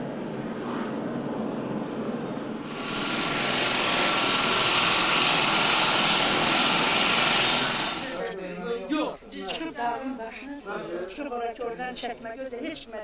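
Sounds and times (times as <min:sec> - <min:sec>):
helicopter rotor and turbine: 0:00.0 - 0:08.2
high whine: 0:02.6 - 0:08.2.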